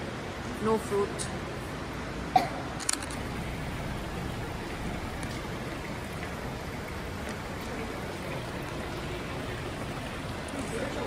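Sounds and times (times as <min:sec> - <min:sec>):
waterfall rushing into pond: 0:03.2 - 0:11.0.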